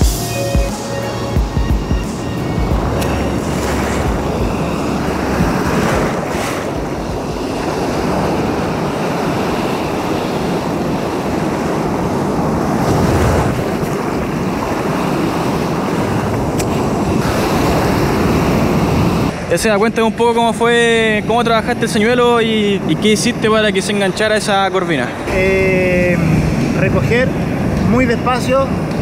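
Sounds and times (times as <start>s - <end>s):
ocean surf washing up beach: 0.0s - 29.0s
wind on microphone: 1.4s - 19.5s, 25.2s - 29.0s.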